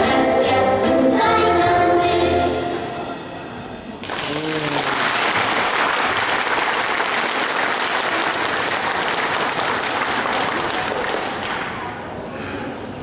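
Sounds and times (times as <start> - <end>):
children's song: 0.0 - 3.2
audience applause: 4.0 - 12.1.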